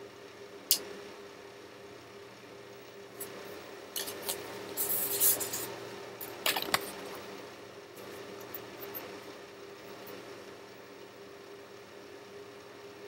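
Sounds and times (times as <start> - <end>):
steady low hum: 0.0 - 13.0
paper cards rustling: 4.0 - 7.2.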